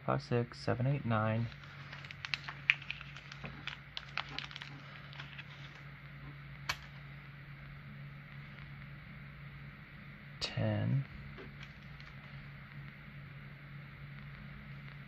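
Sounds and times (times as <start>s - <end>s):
low hum: 0.0s - 15.0s
plastic sheet crinkling: 1.4s - 5.9s, 11.5s - 12.4s.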